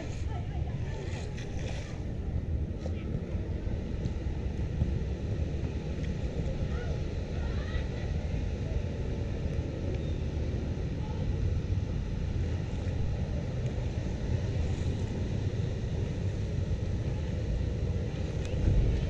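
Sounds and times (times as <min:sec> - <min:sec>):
feet wading through water: 0:00.0 - 0:03.5.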